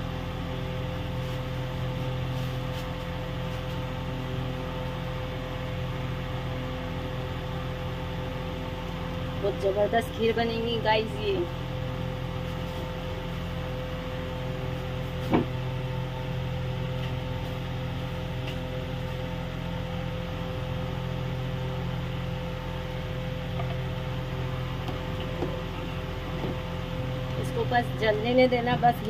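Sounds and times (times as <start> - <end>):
motor humming: 3.6 - 29.0.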